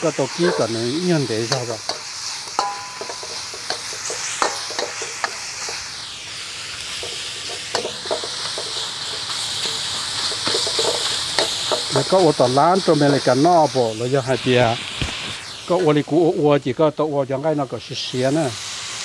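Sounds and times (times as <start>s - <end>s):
food sizzling in hot pan: 0.0s - 19.0s
utensil scraping and tapping pan: 0.3s - 0.8s, 1.5s - 5.8s, 7.0s - 12.1s.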